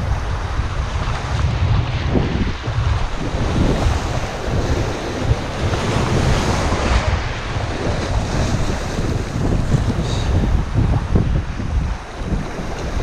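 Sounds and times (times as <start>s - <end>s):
waves washing over rocks: 0.0s - 13.0s
wind buffeting microphone: 0.0s - 13.0s.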